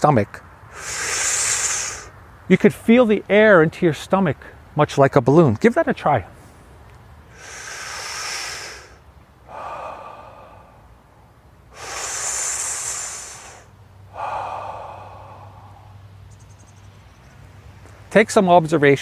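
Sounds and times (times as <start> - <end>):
man breathing deeply: 0.6 - 2.2, 7.3 - 16.1.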